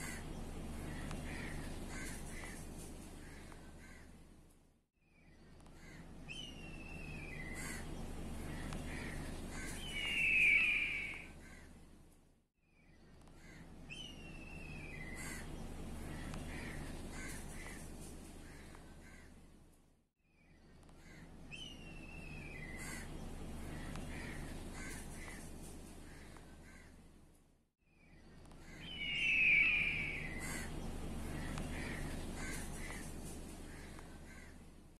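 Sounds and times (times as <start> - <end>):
low steady background hum: 0.0 - 35.0
crow cawing: 3.2 - 4.2, 26.1 - 27.0, 28.6 - 33.1, 33.7 - 34.6.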